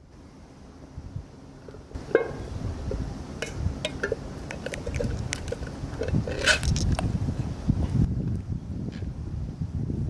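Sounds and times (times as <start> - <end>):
metal can lid clicks and creaks: 3.4 - 7.0
can lid tearing open: 3.9 - 7.1.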